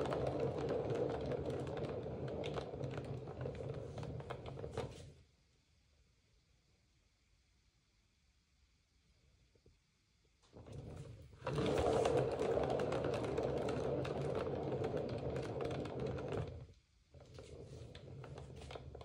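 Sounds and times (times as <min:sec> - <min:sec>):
turntable rattling whir: 0:00.0 - 0:05.0, 0:10.6 - 0:19.0.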